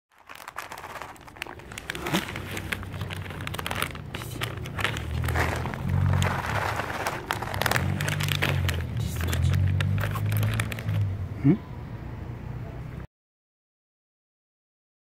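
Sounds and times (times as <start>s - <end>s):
plastic packaging crinkling: 0.1s - 11.1s.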